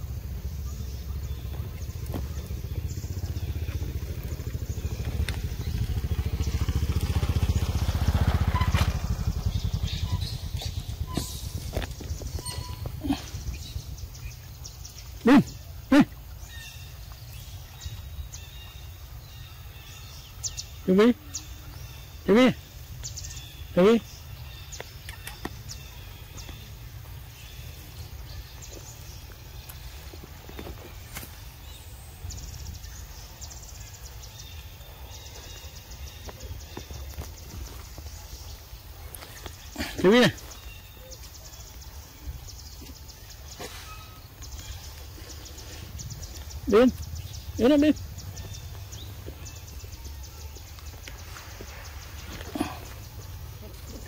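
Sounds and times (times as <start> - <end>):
low rumble: 0.0 - 15.8
engine running with low pulse: 0.0 - 54.0
high bird chirps: 7.4 - 15.6.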